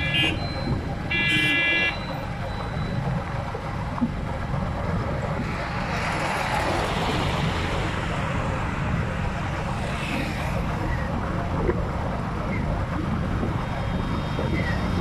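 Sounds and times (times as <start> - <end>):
wind and road rumble: 0.0 - 15.0.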